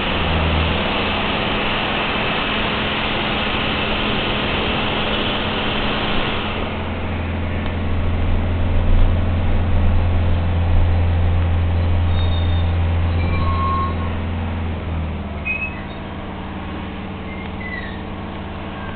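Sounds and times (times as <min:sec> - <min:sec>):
road hiss: 0:00.0 - 0:18.9
trolleybus low hum: 0:00.0 - 0:18.9
short high squeaks: 0:12.0 - 0:14.3, 0:15.4 - 0:16.1, 0:17.2 - 0:18.9.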